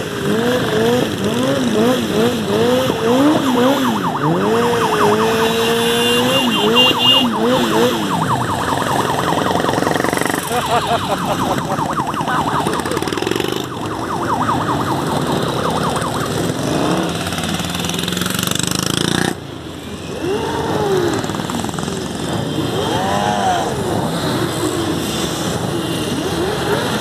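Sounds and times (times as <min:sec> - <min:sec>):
motorcycle engines revving: 0:00.0 - 0:27.0
fast-warbling siren: 0:02.4 - 0:17.3.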